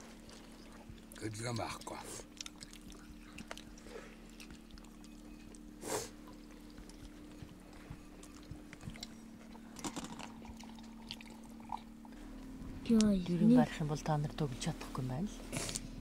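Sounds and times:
steady low hum: 0.0s - 16.0s
person sniffing: 5.8s - 6.2s.

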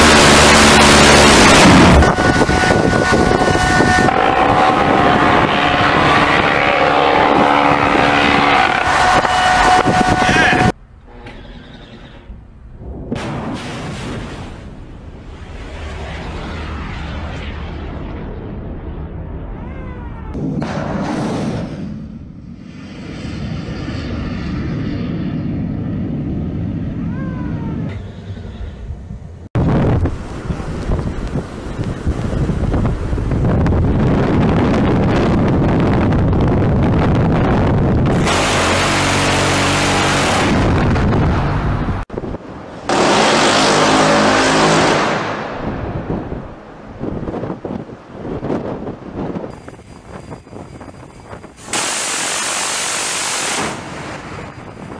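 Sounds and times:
rocket motor roar: 0.0s - 12.4s, 27.8s - 42.1s, 49.3s - 54.9s
wind buffeting microphone: 1.2s - 10.8s, 22.4s - 39.0s, 40.2s - 42.9s, 45.3s - 52.5s, 53.2s - 54.9s.

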